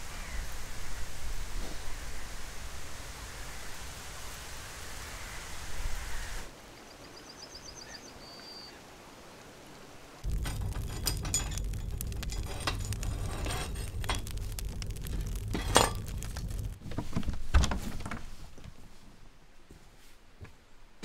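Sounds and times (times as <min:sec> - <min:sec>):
fire roaring and crackling: 0:10.2 - 0:17.5.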